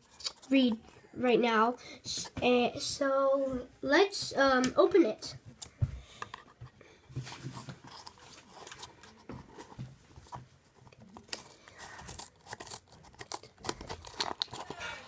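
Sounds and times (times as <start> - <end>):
paper and cardboard scraping: 11.1 - 15.0.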